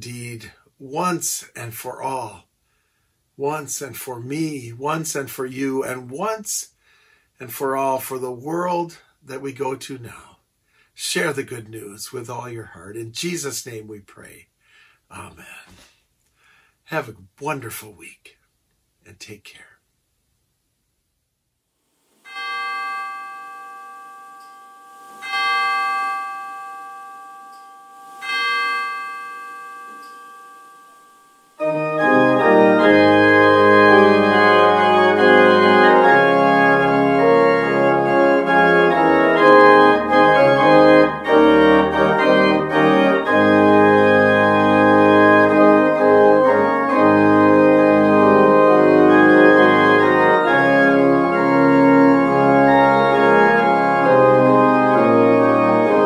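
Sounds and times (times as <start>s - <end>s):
chime tones ringing: 22.2s - 32.8s
pipe organ playing chords: 22.3s - 56.0s.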